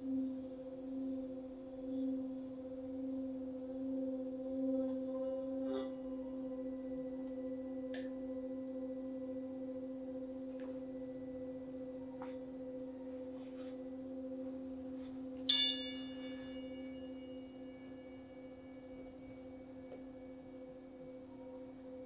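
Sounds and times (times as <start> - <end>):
singing bowl humming: 0.0 - 22.0
small metal bowl struck: 15.5 - 17.2.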